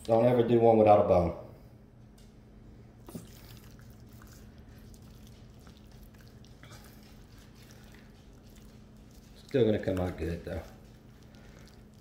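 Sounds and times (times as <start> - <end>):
low steady hum: 0.0 - 12.0
wet squishing of mustard: 3.0 - 12.0.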